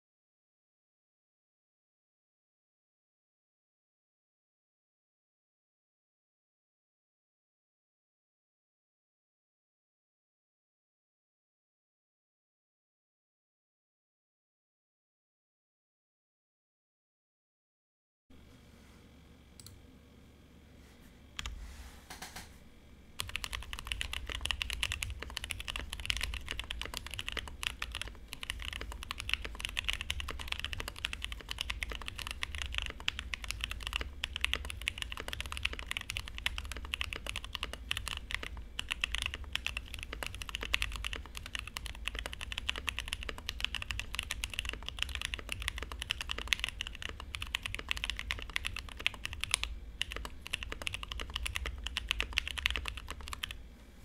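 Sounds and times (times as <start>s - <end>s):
mechanical keyboard typing: 23.2s - 53.6s.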